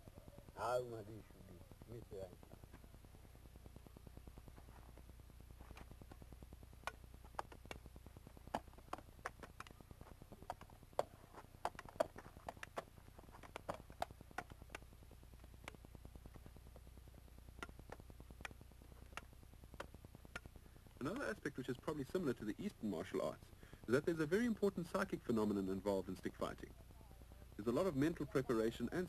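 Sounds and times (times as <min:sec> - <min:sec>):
faint low hum: 0:00.0 - 0:29.0
wooden fighting sticks clacking: 0:08.5 - 0:09.8.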